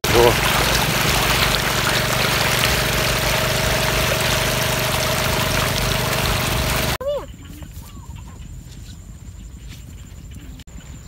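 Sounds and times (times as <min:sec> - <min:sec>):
low engine hum: 0:00.0 - 0:07.0
water gushing from a pipe: 0:00.0 - 0:07.0.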